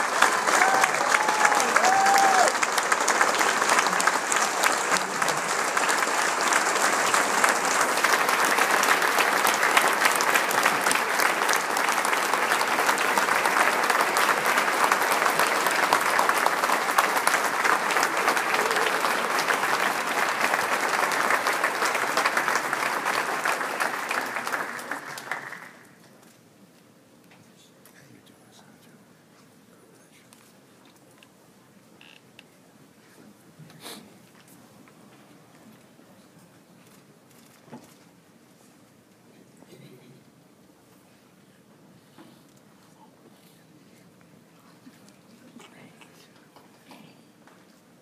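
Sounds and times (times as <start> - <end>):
audience applauding: 0.0 - 26.1.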